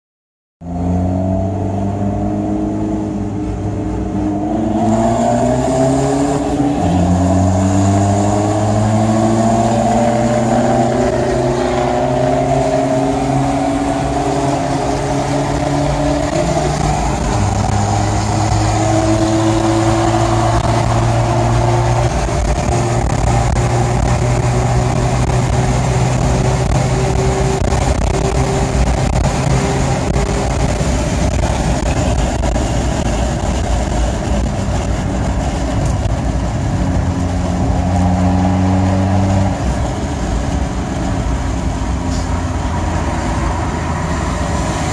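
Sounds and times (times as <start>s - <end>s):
road noise inside car: 0.6s - 44.9s
car engine at steady revs: 0.7s - 44.9s.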